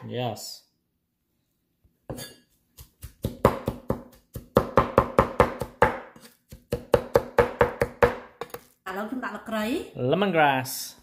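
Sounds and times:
knife chopping on wooden board: 2.1s - 8.7s.

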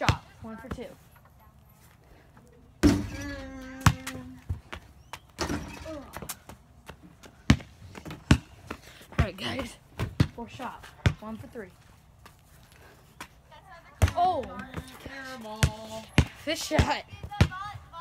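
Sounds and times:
basketball bouncing on concrete: 0.0s - 1.0s, 2.8s - 11.6s, 14.0s - 17.8s.

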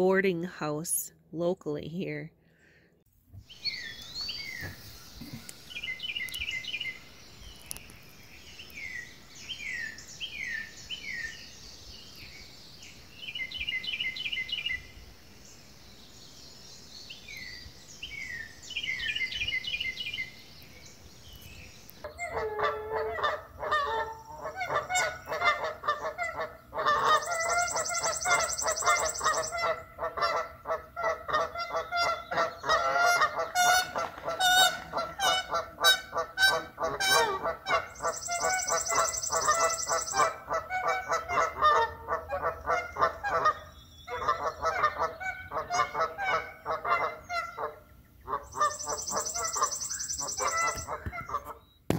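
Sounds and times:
geese honking: 22.0s - 51.6s.

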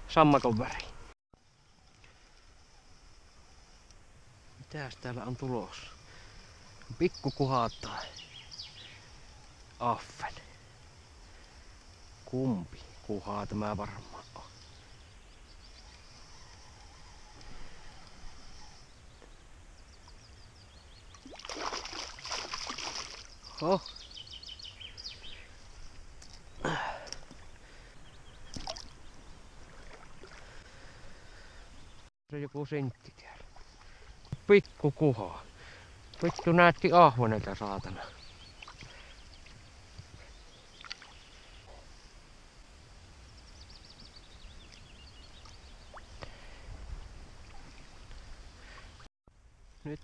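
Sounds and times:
fish splashing in water: 21.1s - 23.3s, 28.5s - 29.0s
songbird warbling: 23.1s - 25.7s.

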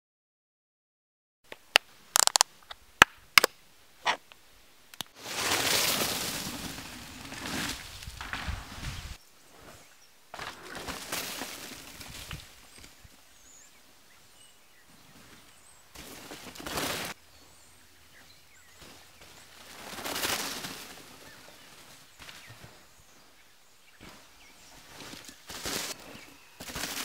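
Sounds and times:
bike tyres rolling through dry leaves: 5.2s - 13.7s, 14.9s - 17.2s, 18.2s - 27.0s.

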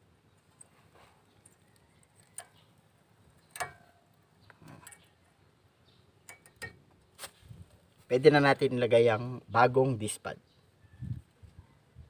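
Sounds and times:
light metallic clicks and taps: 3.4s - 5.1s, 6.2s - 7.0s.

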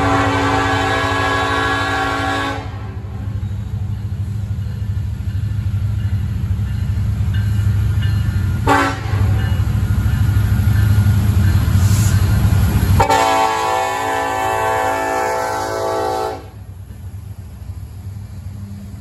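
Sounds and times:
locomotive air horn: 0.0s - 3.3s, 8.6s - 9.4s, 13.0s - 16.6s
diesel locomotive rumble: 0.0s - 19.0s.

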